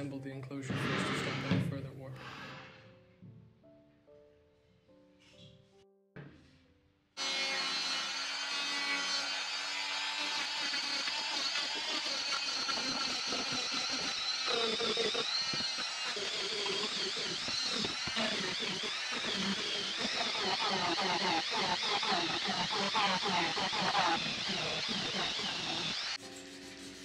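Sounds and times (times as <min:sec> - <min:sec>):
rotary tool whining: 0:07.2 - 0:27.0.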